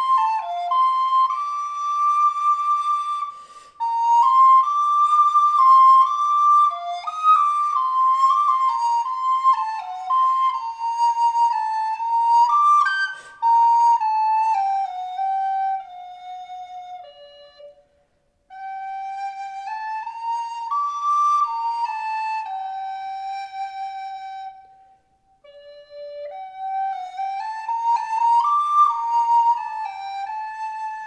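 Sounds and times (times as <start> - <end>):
solo recorder melody: 0.0 - 31.0.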